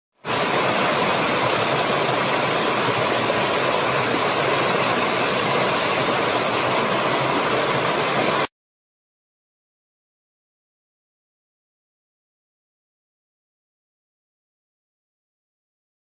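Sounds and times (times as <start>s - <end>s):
stream rushing over stones: 0.2s - 8.5s.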